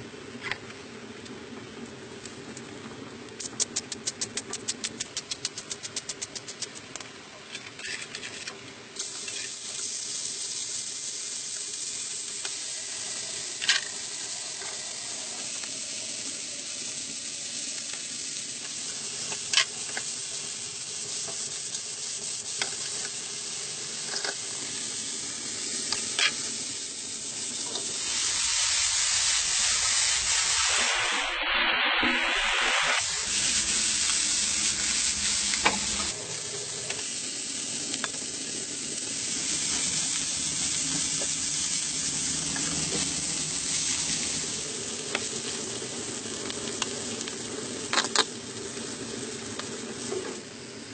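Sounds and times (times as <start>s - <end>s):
sharp clicks: 3.4s - 7.0s
meat sizzling in a frying pan: 8.9s - 31.3s, 32.4s - 50.9s.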